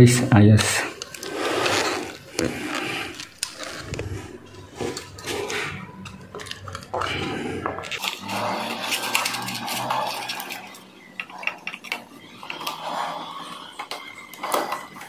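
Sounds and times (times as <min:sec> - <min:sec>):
gloved hand rubbing wall: 0:01.2 - 0:05.9.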